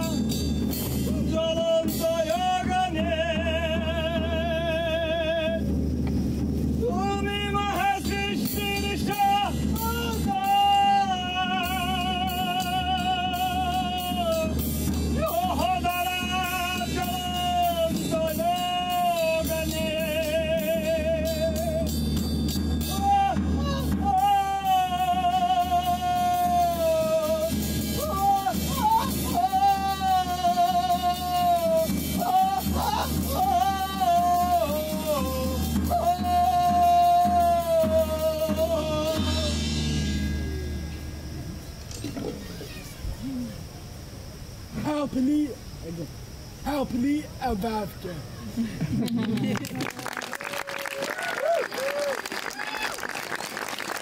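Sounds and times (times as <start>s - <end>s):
drum and cymbal strokes: 0.0s - 48.0s
person singing a long high note: 6.8s - 22.1s, 22.8s - 41.5s
low bowed-string drone: 39.6s - 42.2s.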